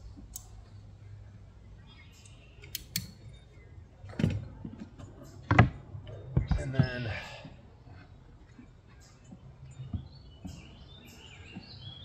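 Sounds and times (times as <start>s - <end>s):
caulking gun clicking: 2.6s - 3.2s.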